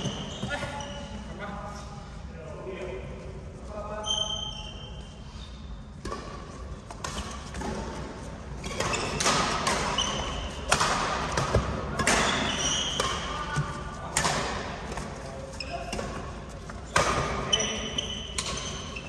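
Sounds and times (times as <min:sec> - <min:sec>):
sneaker squeaks: 0:00.0 - 0:02.0, 0:03.9 - 0:06.0, 0:08.6 - 0:10.8, 0:11.5 - 0:13.9, 0:15.0 - 0:19.0
racket hitting shuttlecock: 0:06.0 - 0:17.6, 0:18.2 - 0:19.0.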